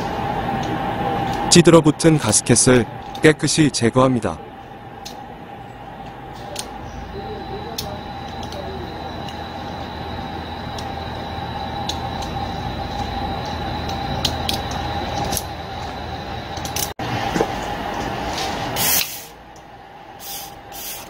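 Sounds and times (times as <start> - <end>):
steady background hum: 0.0 - 21.0
aerosol spray hissing: 18.8 - 19.3, 20.2 - 21.0.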